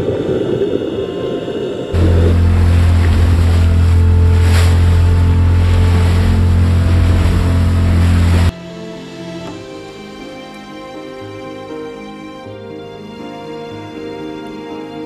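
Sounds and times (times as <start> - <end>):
wind: 0.0 - 15.0
boat engine running: 2.0 - 8.5
water rushing: 2.0 - 8.6.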